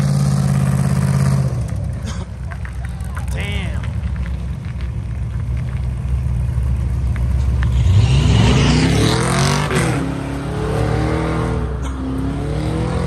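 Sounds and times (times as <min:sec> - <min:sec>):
car revving at full throttle: 0:00.0 - 0:02.1, 0:07.5 - 0:13.0
car engine rumbling: 0:00.0 - 0:13.0.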